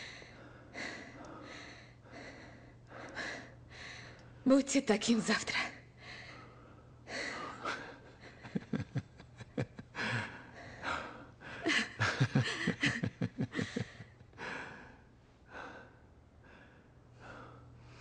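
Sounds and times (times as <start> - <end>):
person chuckling breathily: 9.9 - 14.7.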